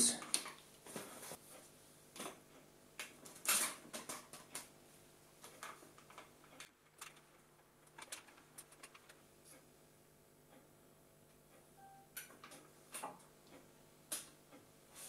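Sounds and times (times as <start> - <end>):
small clicks and knocks: 5.4 - 9.6.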